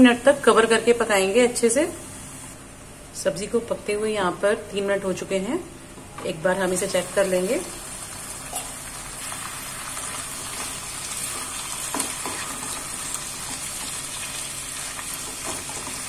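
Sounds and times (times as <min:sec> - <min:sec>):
vegetables sizzling in oil: 0:06.5 - 0:16.0.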